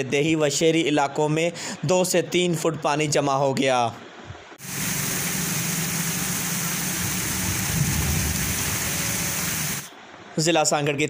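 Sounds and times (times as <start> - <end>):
heavy rain pouring: 4.6 - 9.9.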